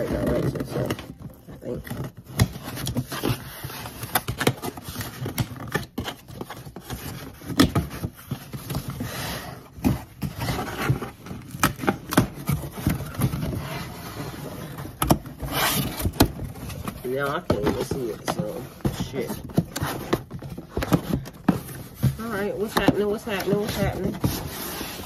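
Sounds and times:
cardboard scraping and rustling: 0.0s - 25.0s
cardboard tearing: 0.0s - 25.0s.

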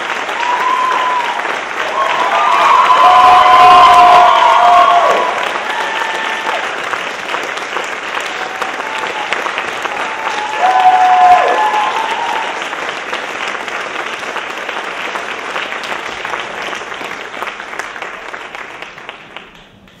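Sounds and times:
high cheer: 0.0s - 13.2s
audience applauding: 0.0s - 20.0s.

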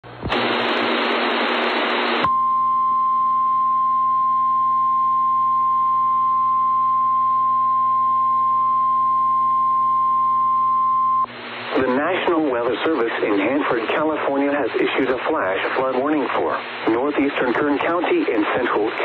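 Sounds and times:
harsh noisy data burst: 11.2s - 19.0s.

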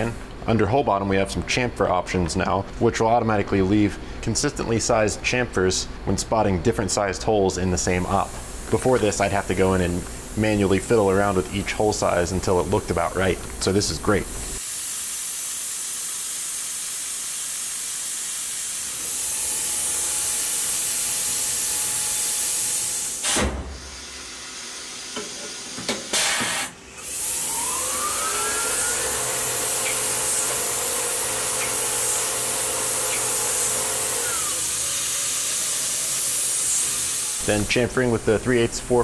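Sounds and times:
coolant nozzle hissing: 7.8s - 19.3s, 26.9s - 38.1s
mill spindle whining: 26.8s - 39.0s.

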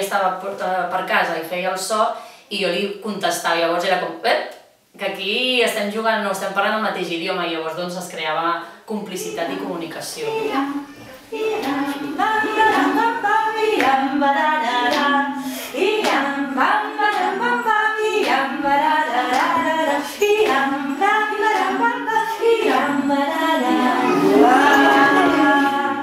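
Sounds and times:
group singing a children's song: 9.2s - 26.0s
hand claps: 11.6s - 13.0s, 13.8s - 14.1s, 14.8s - 15.2s, 16.0s - 16.3s, 17.0s - 17.4s, 18.2s - 18.6s, 19.2s - 19.8s, 20.4s - 20.8s, 21.5s - 21.9s.

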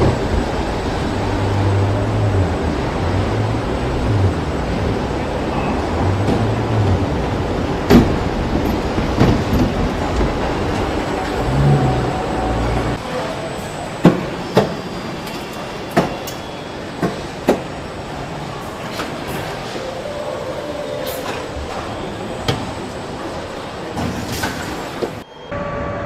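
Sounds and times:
machinery rumble with low hum: 0.0s - 26.0s.

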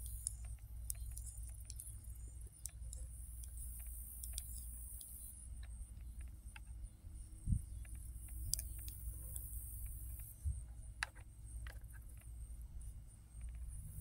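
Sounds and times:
knitting needles clicking: 0.0s - 6.8s, 7.8s - 10.3s.

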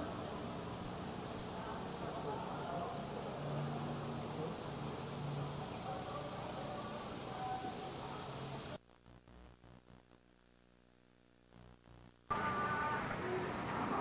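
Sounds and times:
high-pitched insect trill: 0.0s - 8.8s
faint tape hum and hiss: 0.0s - 14.0s.

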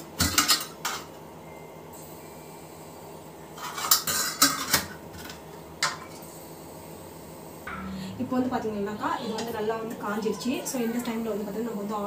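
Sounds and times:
metal pots and lids clanking: 7.7s - 10.4s.

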